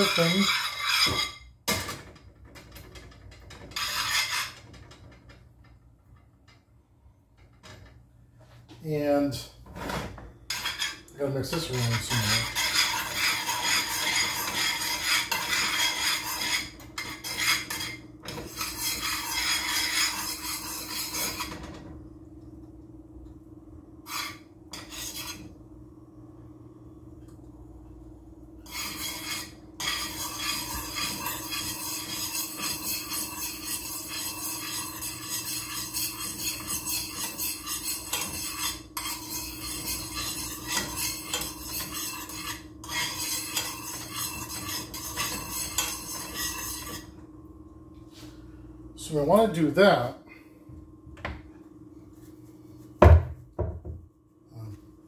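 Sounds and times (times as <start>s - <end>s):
spoon scraping in frying pan: 0.0s - 1.5s, 3.7s - 4.7s, 10.5s - 21.6s, 24.1s - 25.5s, 28.6s - 47.1s
constant low hum: 0.0s - 55.0s.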